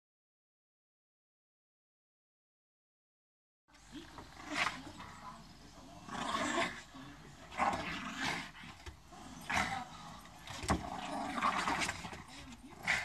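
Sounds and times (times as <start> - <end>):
dogs growling: 3.8 - 13.0.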